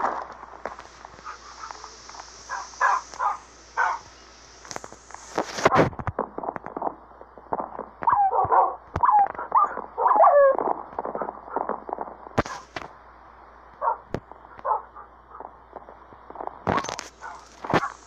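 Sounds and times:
scattered clicks and taps: 4.6s - 9.9s
dog whining and yelping: 8.0s - 10.6s.

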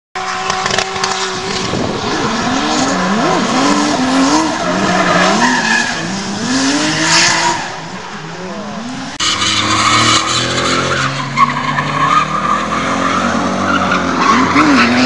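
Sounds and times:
car engine revving: 0.2s - 15.0s
tyres squealing on tarmac: 4.4s - 6.2s, 9.2s - 15.0s.

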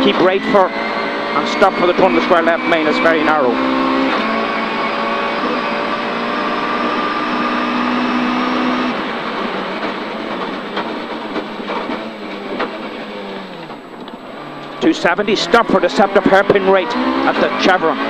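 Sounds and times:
rally car engine at high revs: 0.0s - 18.0s
road and drivetrain noise: 0.0s - 18.0s.

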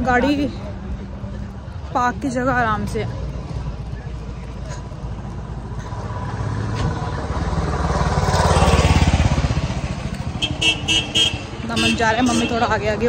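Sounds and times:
vehicle engine passing by: 3.1s - 11.7s
horn toot: 10.4s - 12.6s.

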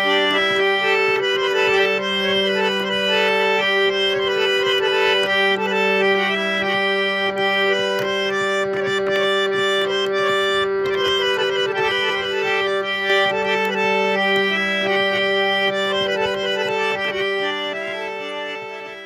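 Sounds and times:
held instrumental melody: 0.0s - 19.0s.

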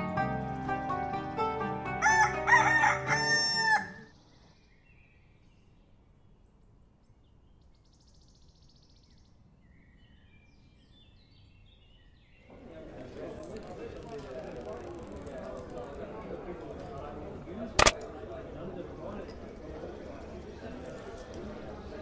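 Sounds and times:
rooster crowing: 2.0s - 4.1s.

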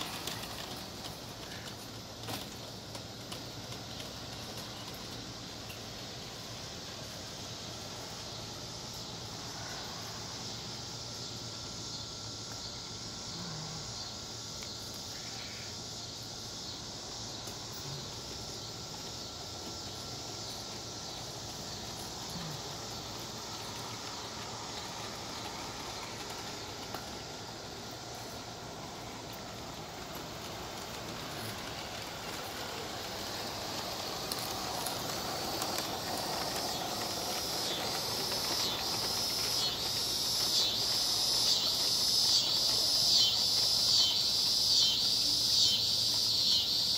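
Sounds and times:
steam hiss: 0.0s - 46.9s
steam exhaust chuffs: 16.8s - 46.9s.

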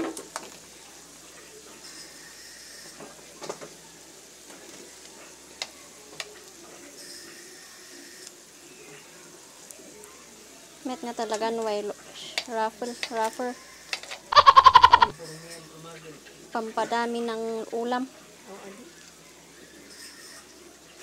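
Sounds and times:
food sizzling in oil: 0.1s - 15.3s
sharp clicks: 12.4s - 15.1s.

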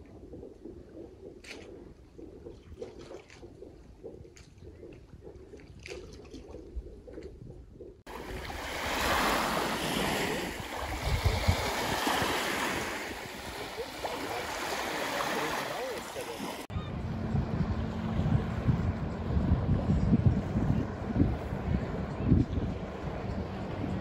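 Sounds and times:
wind on microphone: 0.0s - 24.0s
lake waves washing onto sand: 8.1s - 16.7s
low rumble: 16.7s - 24.0s.

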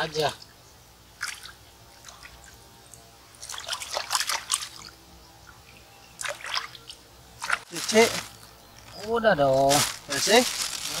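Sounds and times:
water splashing in stream: 3.4s - 5.0s.

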